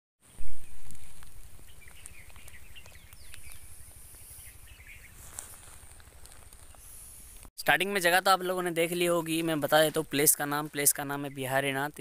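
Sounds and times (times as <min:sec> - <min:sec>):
small bird chirps: 0:00.3 - 0:05.3.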